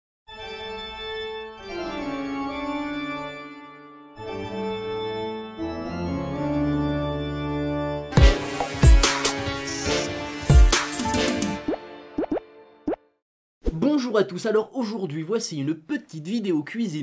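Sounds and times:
organ chords: 0:00.3 - 0:12.2.

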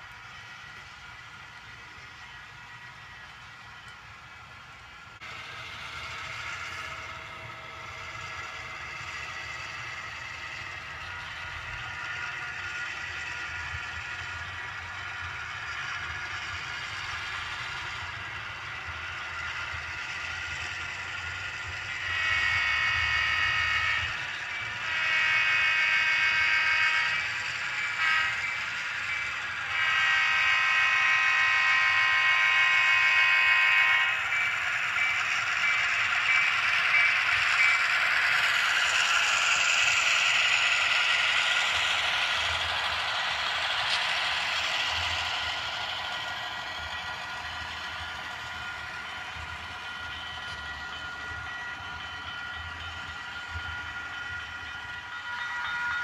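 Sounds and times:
model train rushing and clattering: 0:00.0 - 0:56.0
model locomotive horn blasts: 0:21.9 - 0:34.4, 0:55.2 - 0:56.0.

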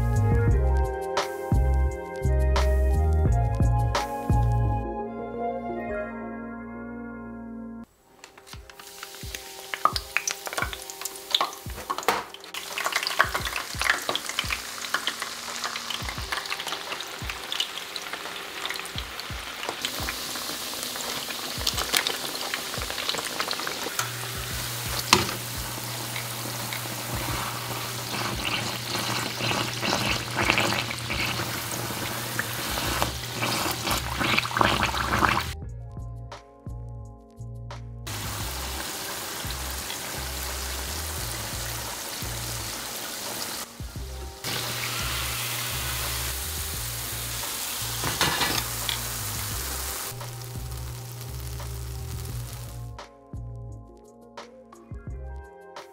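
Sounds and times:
dough deep-frying in hot oil: 0:08.4 - 0:35.6, 0:38.1 - 0:53.0.

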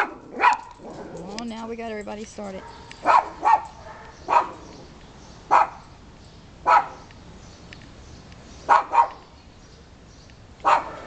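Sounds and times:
small dog barking: 0:00.0 - 0:01.1, 0:02.6 - 0:04.6, 0:05.5 - 0:05.8, 0:06.6 - 0:07.0, 0:08.7 - 0:09.2, 0:10.6 - 0:11.0.

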